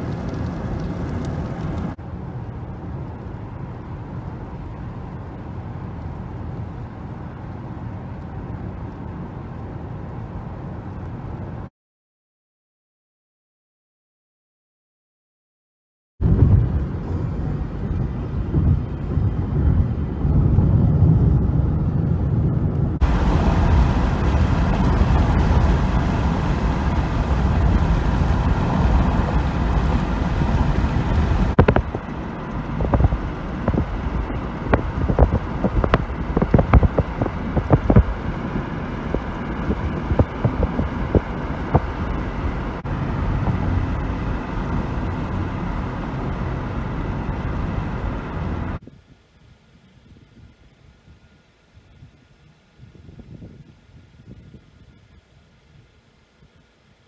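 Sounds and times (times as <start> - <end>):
road noise inside moving car: 0.0 - 11.7, 16.2 - 57.0
wind blowing across microphone: 16.2 - 56.8.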